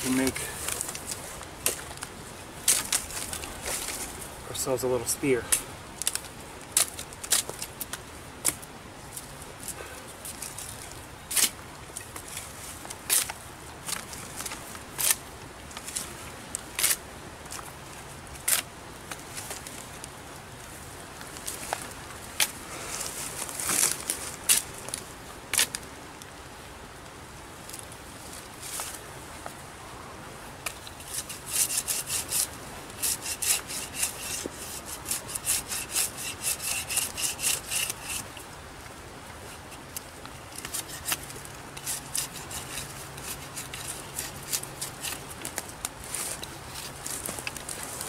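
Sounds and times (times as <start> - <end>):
rasping sawing strokes: 31.0 - 38.3, 40.6 - 45.3.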